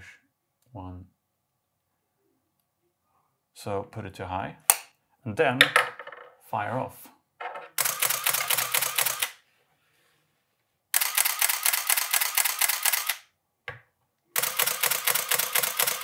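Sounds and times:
camera winder motor: 7.8 - 9.4, 11.0 - 13.2, 14.4 - 16.0
rapid camera shutter clicks: 7.8 - 9.4, 10.9 - 13.3, 14.4 - 16.0.

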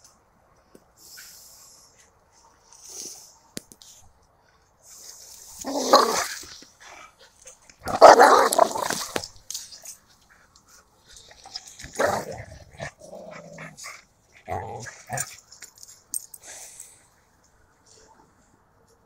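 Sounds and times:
dogs growling and barking: 5.6 - 9.3, 11.1 - 15.6.

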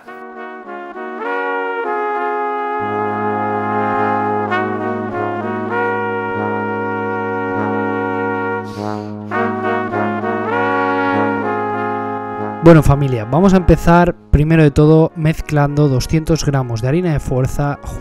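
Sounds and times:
melody of held notes: 0.0 - 18.0
steady bass line: 2.7 - 17.0.

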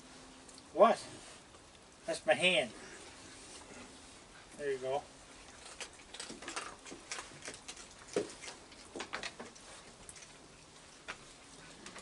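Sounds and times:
raccoons crunching dry food: 2.8 - 12.0.

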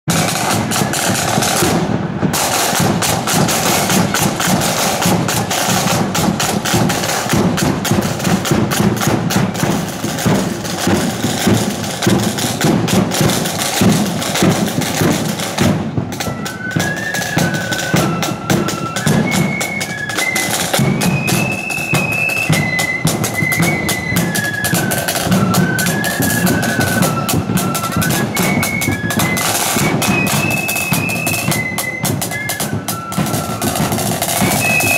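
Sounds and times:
flutes playing a tune: 0.1 - 34.9
side drums and bass drum: 0.1 - 34.9.

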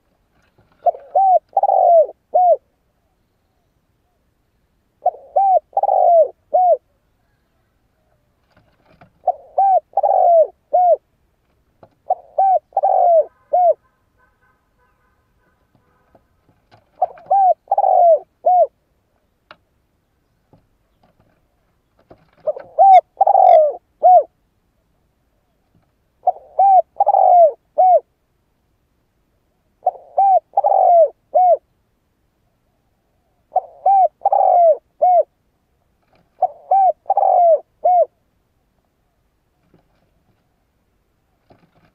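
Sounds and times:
dove cooing: 0.6 - 3.2, 5.0 - 11.1, 11.8 - 14.0, 16.7 - 18.8, 22.2 - 24.4, 26.2 - 28.1, 29.8 - 31.7, 33.1 - 35.4, 36.3 - 38.2.

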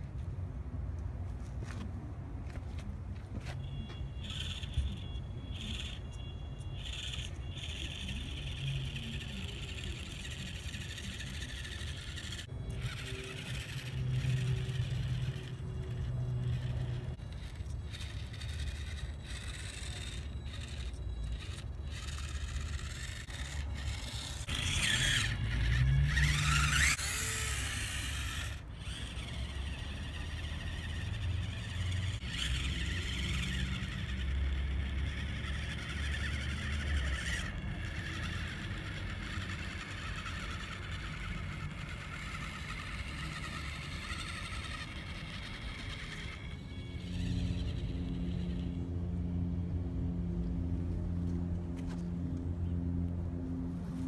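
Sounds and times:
small motor whining: 3.6 - 52.4.

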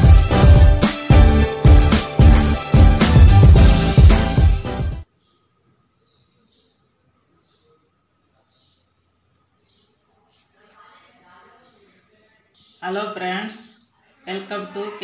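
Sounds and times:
intro music: 0.0 - 5.0
cricket trilling: 5.0 - 15.0.

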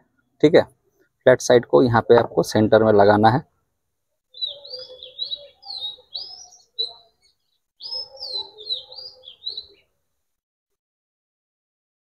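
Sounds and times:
bird singing: 4.3 - 10.0.

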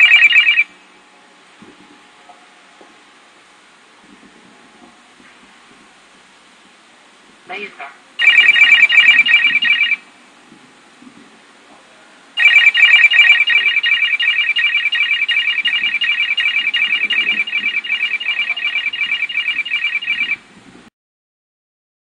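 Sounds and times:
rapid high-pitched electronic beeps: 8.2 - 10.0, 12.4 - 20.4.

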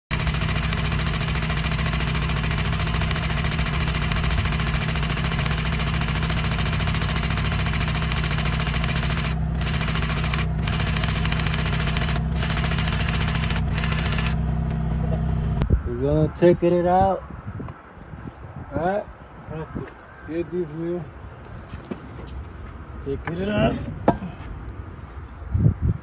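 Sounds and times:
diesel engine idling: 0.1 - 15.6.

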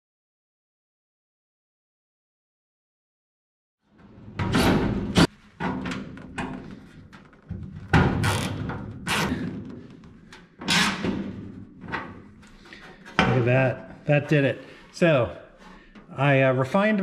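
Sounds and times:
power drill driving screws into steel: 10.7 - 11.1.

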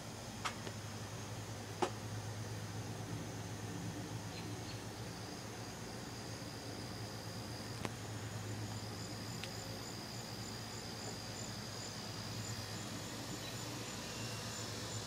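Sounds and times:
low steady hum: 0.0 - 15.0
insect chirp pulsing: 0.1 - 15.0
insects trilling: 0.4 - 15.0.

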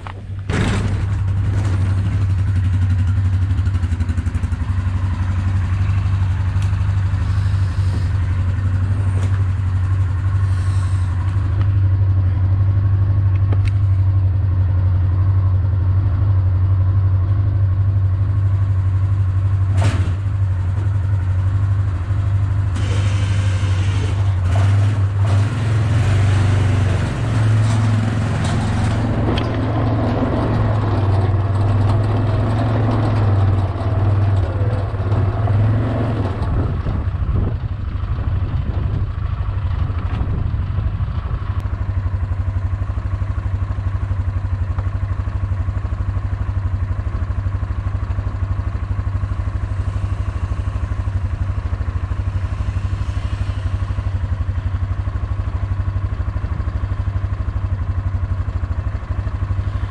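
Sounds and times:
quad engine running: 0.0 - 59.9.

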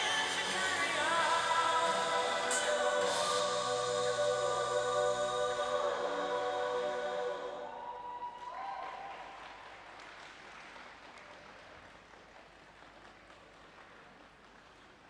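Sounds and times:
held notes of program music: 0.0 - 7.7
audience applause: 8.3 - 15.0.

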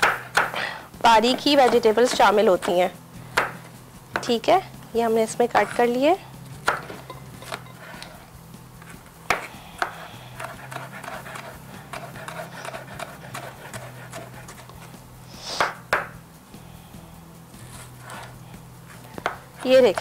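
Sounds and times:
knife chopping on wooden board: 0.0 - 4.4, 6.6 - 7.6, 9.3 - 14.6, 15.6 - 16.2, 19.2 - 20.0.

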